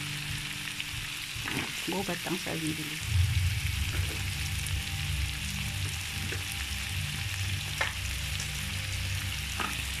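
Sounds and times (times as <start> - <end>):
food sizzling in a wok: 0.0 - 10.0
low hum: 3.0 - 9.4.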